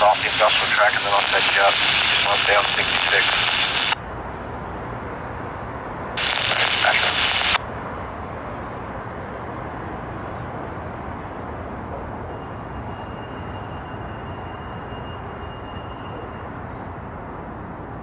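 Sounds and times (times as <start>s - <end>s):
scanner radio transmission: 0.0s - 4.0s, 6.2s - 7.6s.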